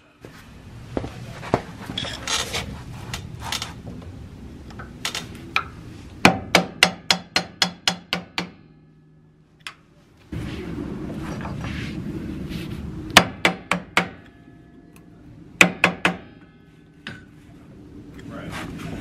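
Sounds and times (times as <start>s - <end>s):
metal clinks and scraping: 1.8s - 3.8s
steady rushing noise: 9.9s - 19.0s.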